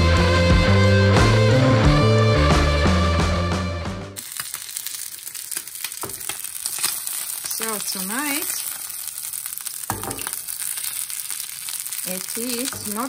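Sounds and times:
rock music: 0.0s - 4.2s
fish sizzling in oil: 4.2s - 13.0s.

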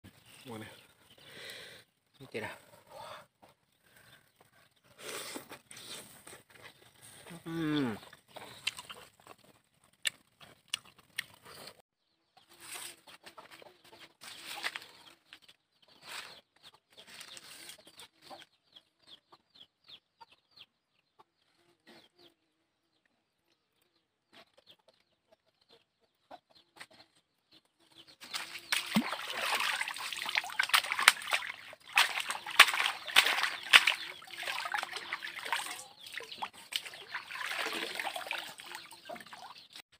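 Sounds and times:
chickens clucking: 12.4s - 22.3s, 24.3s - 39.8s
water splashing and sloshing: 28.2s - 39.8s.

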